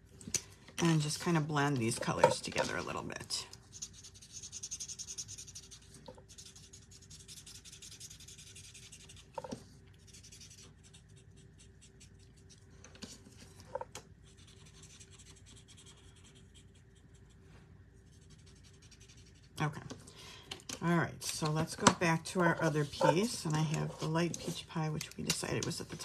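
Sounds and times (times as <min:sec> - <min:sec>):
marker scratching on cardstock: 0:03.6 - 0:13.2, 0:14.2 - 0:17.3, 0:18.1 - 0:19.5, 0:22.6 - 0:25.0.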